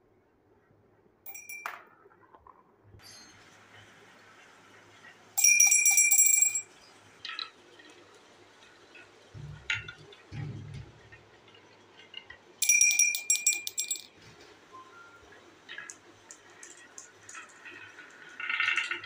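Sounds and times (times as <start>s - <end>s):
marble clinking in glass: 1.3s - 2.6s, 5.4s - 6.7s, 12.6s - 14.2s
marble rolling on wooden track: 1.3s - 2.9s, 15.7s - 19.0s.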